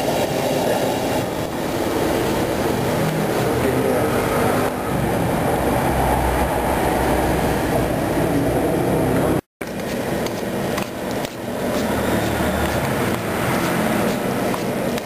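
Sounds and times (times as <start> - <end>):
gas burner roaring: 0.0 - 15.0
water boiling: 9.6 - 15.0.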